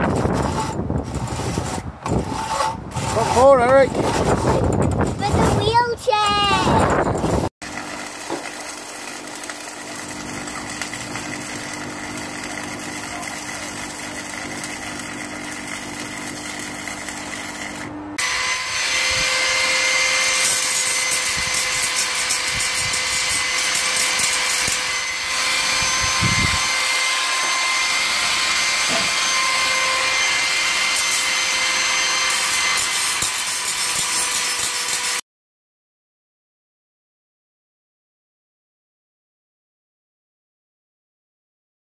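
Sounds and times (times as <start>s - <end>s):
angle grinder whine: 6.8s - 35.2s
arc welding crackling hiss: 7.6s - 24.9s, 32.3s - 35.2s.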